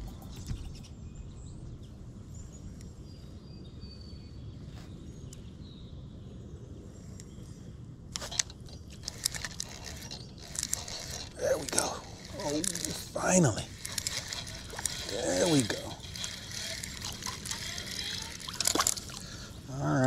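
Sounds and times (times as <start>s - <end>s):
sharp clicks and crackles: 8.1s - 19.6s.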